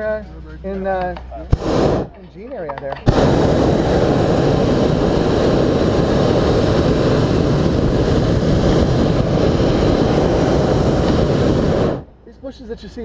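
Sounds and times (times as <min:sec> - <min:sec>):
propane burner rushing: 0:01.5 - 0:02.1, 0:03.0 - 0:12.1.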